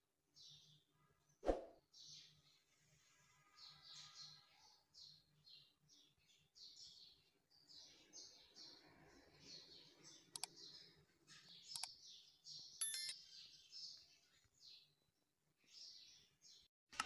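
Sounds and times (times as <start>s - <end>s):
faint birds chirping: 0.0s - 17.0s
sharp electronic clicks: 12.8s - 13.2s.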